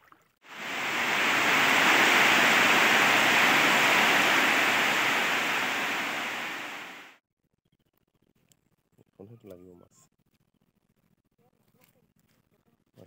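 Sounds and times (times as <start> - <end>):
heavy rain on foliage: 0.5 - 7.1.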